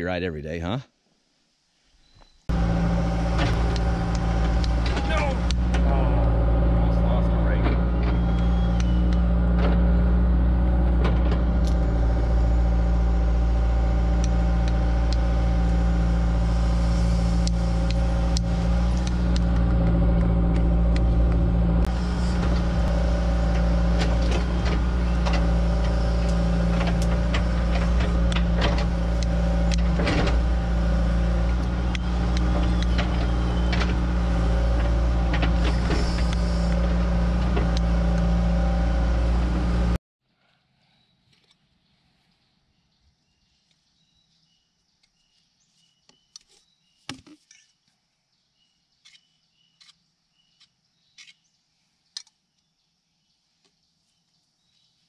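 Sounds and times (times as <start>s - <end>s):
excavator engine running: 2.5s - 40.0s
metal clanks and knocks: 18.8s - 38.0s.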